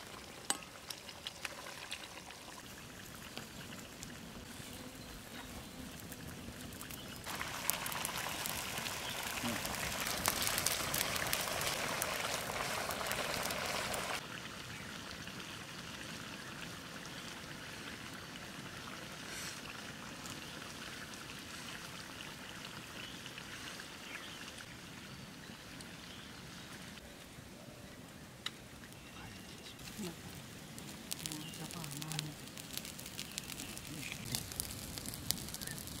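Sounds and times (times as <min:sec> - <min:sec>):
curry sizzling in a pan: 0:05.6 - 0:17.4, 0:29.8 - 0:36.0.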